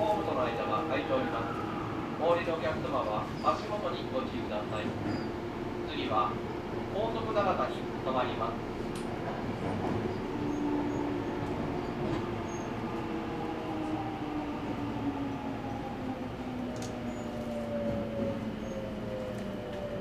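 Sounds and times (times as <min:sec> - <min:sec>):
train running noise: 0:06.9 - 0:20.0.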